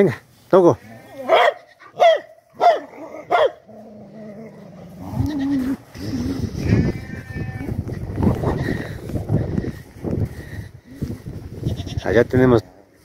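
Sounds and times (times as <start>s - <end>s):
dog barking: 1.2s - 3.6s.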